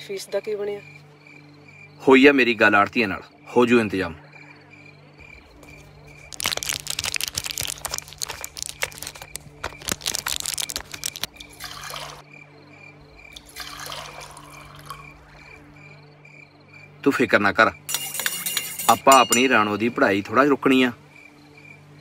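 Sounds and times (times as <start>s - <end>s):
milk pouring into steel tumbler: 13.4s - 15.1s
spoon clinking in steel tumbler: 17.9s - 20.0s.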